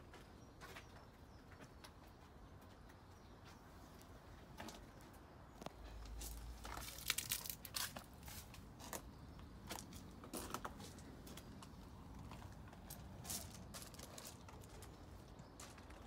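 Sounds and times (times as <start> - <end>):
crunching footsteps: 3.4 - 16.0.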